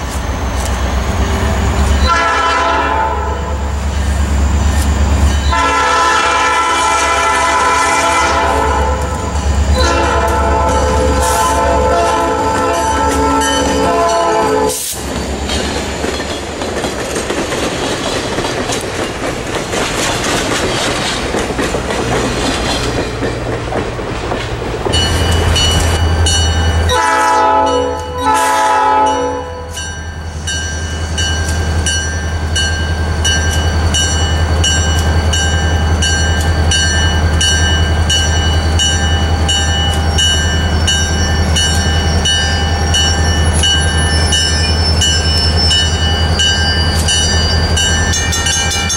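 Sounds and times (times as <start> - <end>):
diesel locomotive engine rumbling: 0.0 - 48.9
crossing bell dinging: 1.6 - 14.7, 24.9 - 48.9
locomotive air horn blasts: 2.0 - 3.6, 5.5 - 15.0, 26.9 - 29.9
train wheels clattering on rails: 12.1 - 27.1, 29.8 - 48.9.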